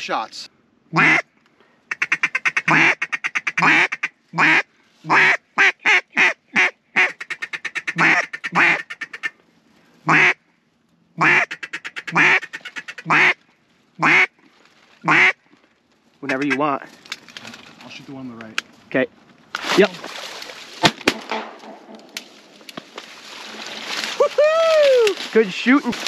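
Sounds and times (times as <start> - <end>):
duck call quacking: 0.9 - 1.3, 1.9 - 9.4, 10.0 - 10.4, 11.2 - 13.4, 14.0 - 14.4, 15.0 - 15.4, 16.3 - 16.7.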